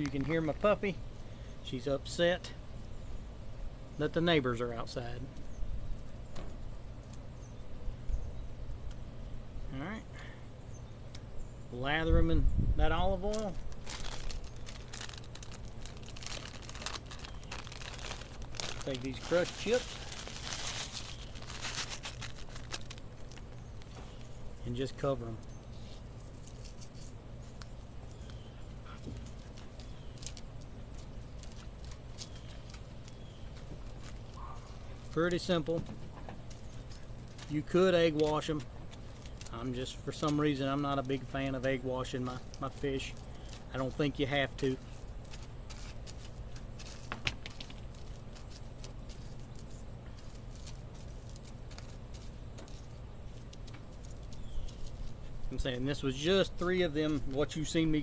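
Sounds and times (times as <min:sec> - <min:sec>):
steady low hum: 0:00.0 - 0:58.0
crushed chips crackling: 0:13.2 - 0:24.8, 0:29.2 - 0:35.5, 0:44.6 - 0:55.6.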